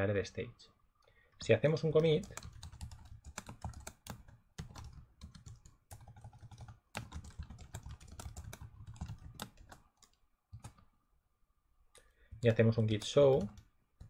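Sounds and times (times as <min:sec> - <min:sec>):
keyboard typing clicks: 0:02.0 - 0:10.9.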